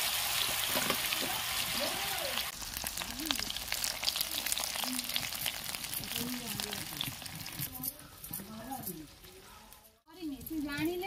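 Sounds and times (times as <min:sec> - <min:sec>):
food frying in hot oil: 0:00.0 - 0:07.7.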